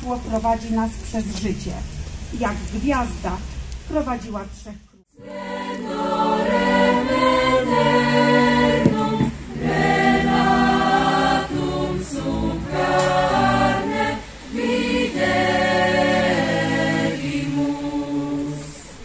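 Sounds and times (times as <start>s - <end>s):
choir singing a carol: 5.1s - 19.0s.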